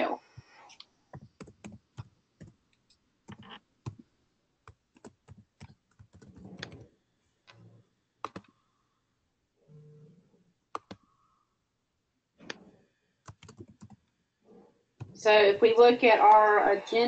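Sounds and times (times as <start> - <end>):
keyboard typing: 1.1 - 2.6, 3.2 - 4.0, 4.6 - 6.9, 7.5 - 8.6, 10.7 - 11.1, 12.4 - 14.1, 15.0 - 15.2.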